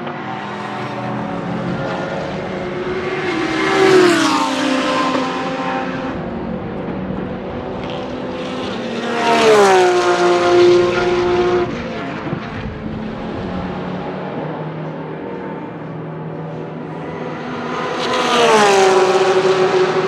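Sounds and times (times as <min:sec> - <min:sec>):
race car engine passing: 0:00.0 - 0:20.0.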